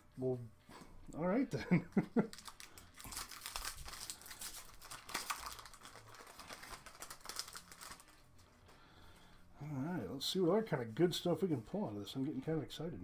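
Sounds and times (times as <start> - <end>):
foil wrapper crinkling and tearing: 2.2 - 8.3.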